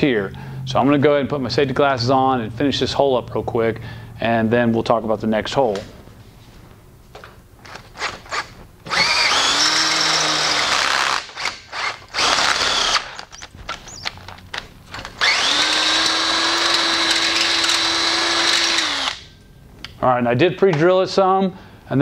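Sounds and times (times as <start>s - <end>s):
cordless drill drilling metal: 7.7s - 14.2s, 15.0s - 19.3s.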